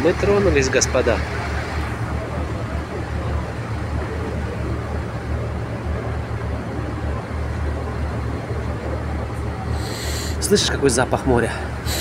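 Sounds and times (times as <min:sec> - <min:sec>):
ferry engines low rumble: 0:00.0 - 0:12.0
hiss of water and wind: 0:09.6 - 0:12.0.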